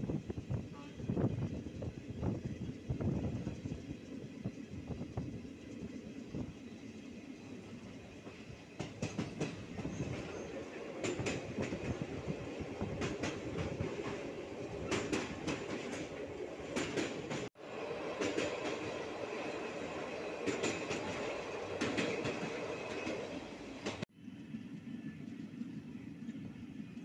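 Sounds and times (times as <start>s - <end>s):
train wheels rumbling on track: 0.0s - 27.0s
wheels clicking over rail joints: 8.2s - 17.5s, 19.9s - 24.0s.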